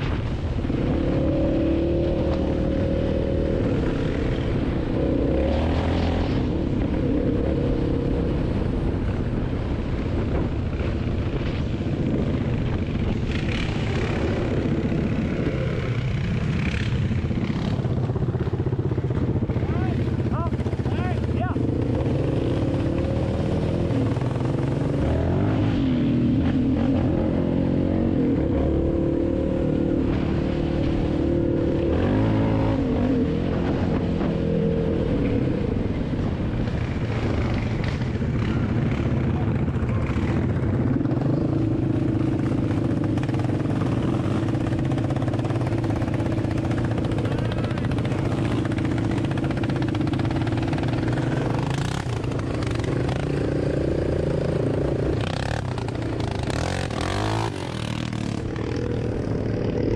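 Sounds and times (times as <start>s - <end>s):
quad engine revving: 0.0s - 9.4s, 11.9s - 59.9s.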